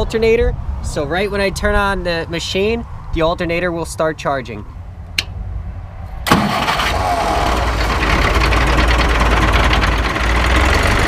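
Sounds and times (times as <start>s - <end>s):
tractor diesel engine starting: 6.2s - 11.0s
tractor engine idling: 6.3s - 11.0s.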